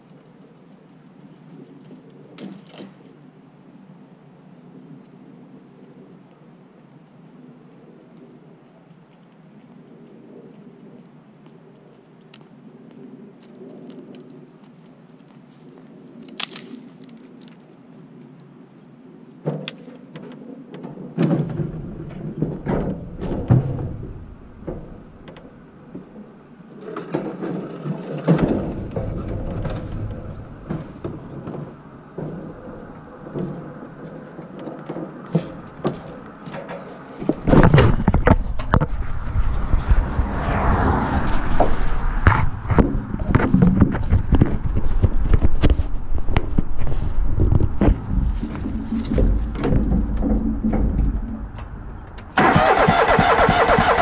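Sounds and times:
knocks and thumps: 21.2 - 26.1, 41.3 - 52.3
low rumbling on microphone: 21.5 - 26.5, 28.4 - 34.6, 37.2 - 52.4.

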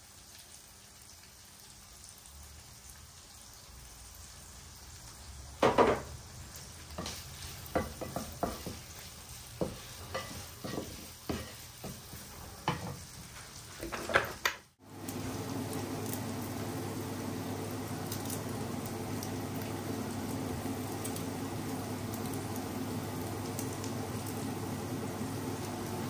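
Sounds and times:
frying sizzle: 0.0 - 26.0
wooden spoon scraping a pan: 6.9 - 14.4.

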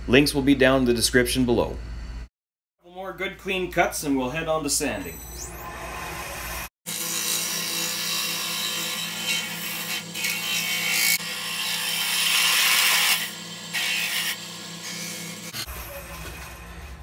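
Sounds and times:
tool shaving wood hiss: 6.9 - 17.0
wood lathe humming: 6.9 - 17.0.

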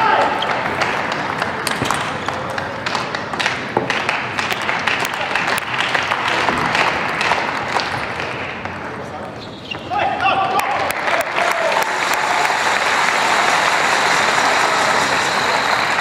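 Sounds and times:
crowd hubbub: 0.0 - 16.0
crowd applauding: 3.9 - 8.6, 10.5 - 16.0.

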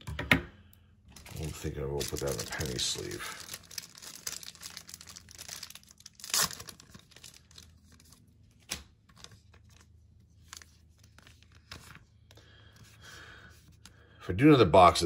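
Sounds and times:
cards and plastic packaging crinkling: 1.1 - 13.0.

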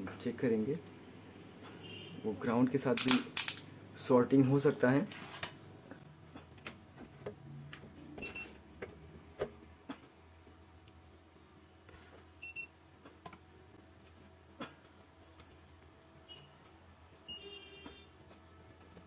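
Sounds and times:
multimeter high beeps: 12.4 - 12.8.

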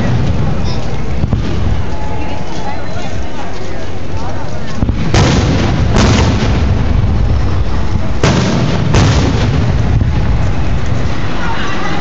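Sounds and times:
fireworks booming: 0.0 - 2.2, 4.8 - 12.0
low rumble: 4.6 - 12.0.

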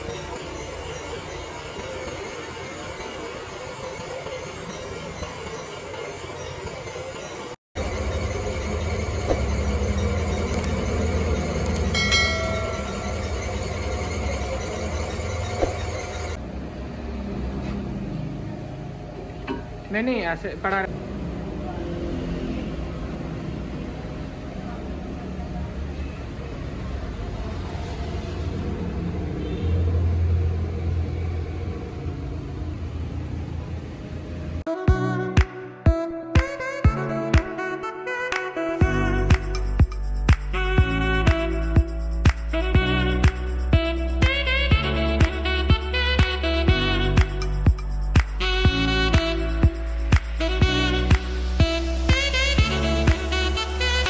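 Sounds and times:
high-pitched squeal: 0.0 - 16.4
machine motor humming: 0.0 - 16.6
lathe machine hum: 0.0 - 34.6.

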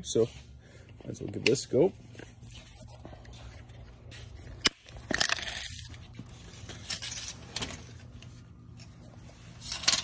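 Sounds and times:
low steady hum: 0.0 - 10.0
tape measure blade rattling: 9.5 - 10.0.

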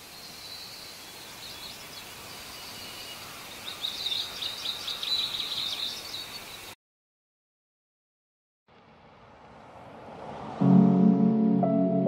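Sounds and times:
background hiss: 0.0 - 6.8
birds chirping: 0.0 - 6.8
high chattering bird calls: 0.5 - 6.7.

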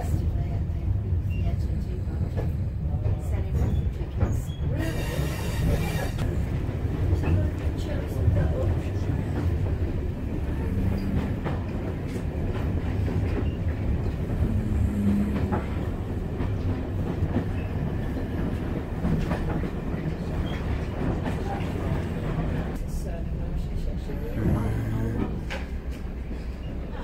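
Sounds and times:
train rumbling on track: 0.0 - 27.0.

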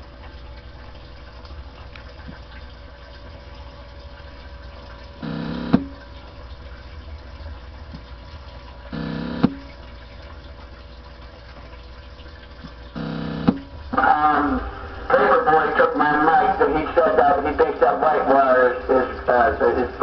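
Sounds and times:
radio hiss and hum: 5.2 - 6.0, 9.0 - 9.6, 13.0 - 20.0
short buzzing tone: 5.2 - 6.0, 8.9 - 9.7, 13.0 - 13.7.

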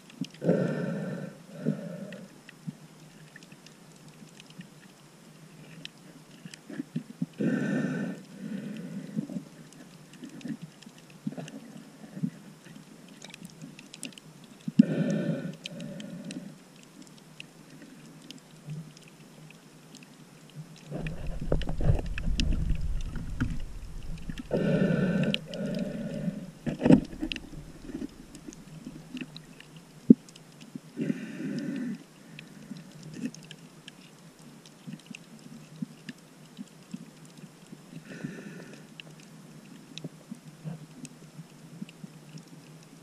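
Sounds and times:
rumble of moving water: 0.0 - 43.0
breathing through a snorkel: 0.4 - 2.3, 7.4 - 9.5, 14.8 - 16.6, 20.9 - 28.5, 31.0 - 32.9, 38.0 - 38.9
faint clicks: 2.1 - 7.4, 8.2 - 43.0.

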